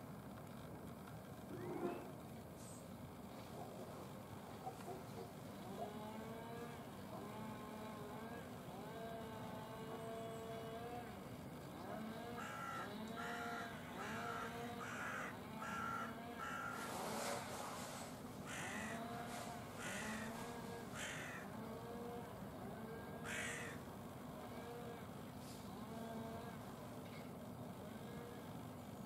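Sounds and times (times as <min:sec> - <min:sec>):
crow cawing: 0:12.2 - 0:16.9, 0:18.4 - 0:19.2, 0:19.8 - 0:21.6, 0:23.2 - 0:23.9.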